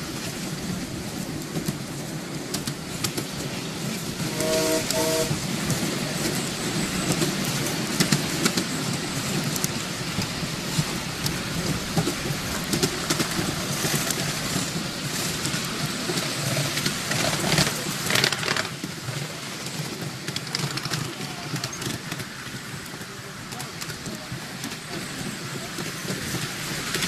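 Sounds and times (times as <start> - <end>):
train wheels rumbling on rail: 0.0 - 27.0
sharp clicks and rattles: 16.7 - 18.9.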